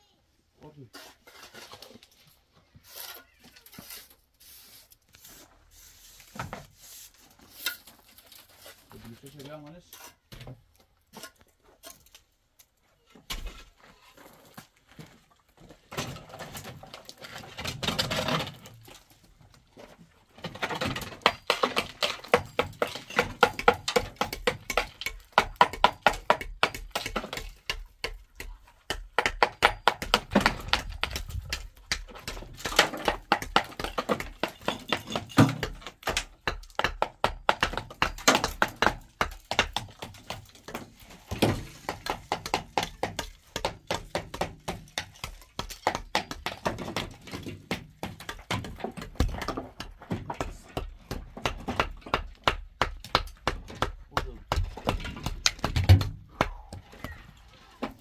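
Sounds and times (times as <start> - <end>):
hammer tapping on concrete blocks: 21.0 - 40.8, 41.8 - 57.2.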